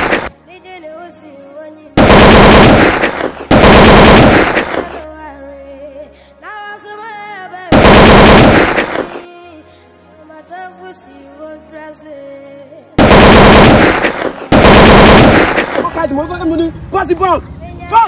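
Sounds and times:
background music: 0:00.0 - 0:18.0
automatic gunfire bursts: 0:02.0 - 0:05.0, 0:07.7 - 0:09.2, 0:13.0 - 0:15.9.

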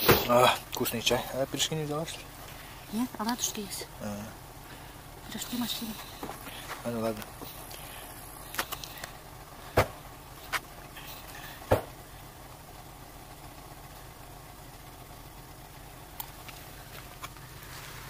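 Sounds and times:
low hum: 0:00.0 - 0:18.0
sharp knocks: 0:11.7 - 0:11.9.

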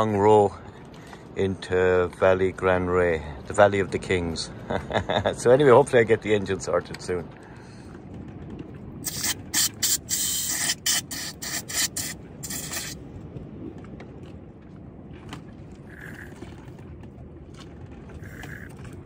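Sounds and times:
aerosol spray hissing: 0:09.0 - 0:13.0.

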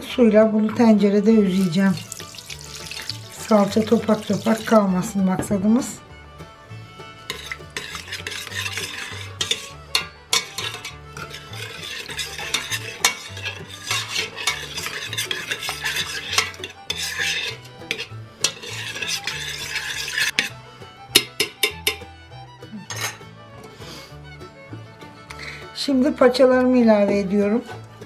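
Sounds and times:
metal spoon scraping pot: 0:00.6 - 0:06.0, 0:07.0 - 0:22.1, 0:22.8 - 0:23.2
spoon clinking against metal pot: 0:07.3 - 0:20.5, 0:21.1 - 0:22.1, 0:22.9 - 0:23.2.

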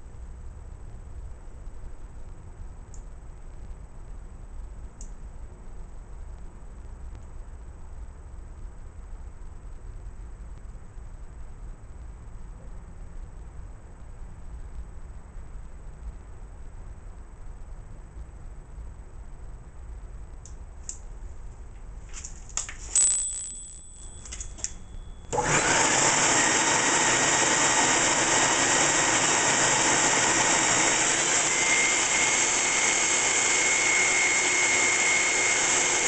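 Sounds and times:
short ringing tone: 0:22.9 - 0:25.7
vacuum motor with high whine: 0:24.3 - 0:36.0.

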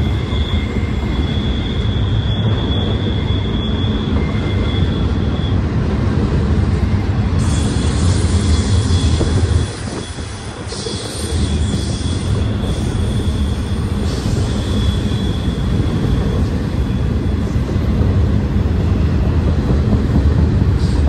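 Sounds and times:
freight train wheels rumbling: 0:00.0 - 0:21.0.

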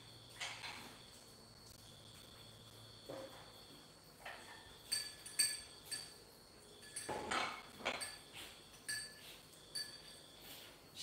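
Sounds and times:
cutlery and plates clinking: 0:04.2 - 0:06.2, 0:06.8 - 0:10.2.

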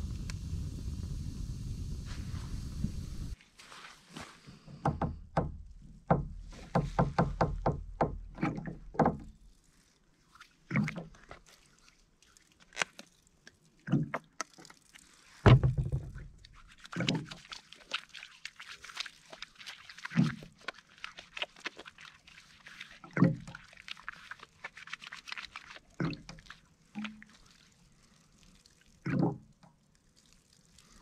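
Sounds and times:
sharp knocks and taps: 0:04.8 - 0:08.2
water trickling onto hands: 0:08.8 - 0:31.0.

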